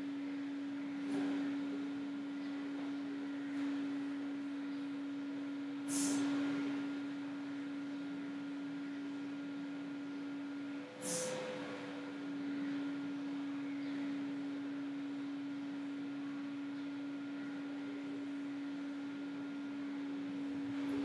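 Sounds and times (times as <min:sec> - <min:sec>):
electrical hum: 0:00.0 - 0:21.0
short hisses: 0:05.9 - 0:06.4, 0:11.0 - 0:11.5.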